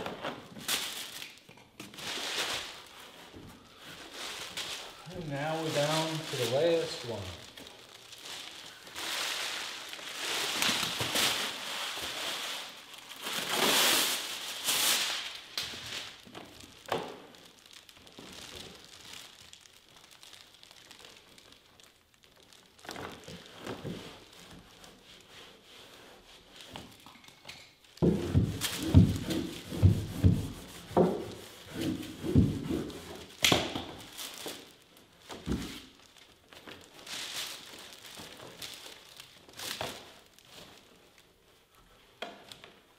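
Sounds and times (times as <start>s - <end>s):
carpet tile crinkling: 0.0s - 25.3s
dull thumps on wooden stair: 28.0s - 31.2s.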